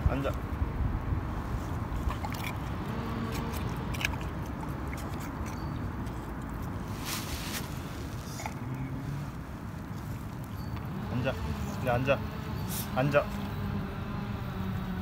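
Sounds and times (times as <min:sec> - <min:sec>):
dog chewing and licking: 0:01.6 - 0:07.3, 0:08.0 - 0:11.9
wet mouth clicks: 0:02.0 - 0:06.8.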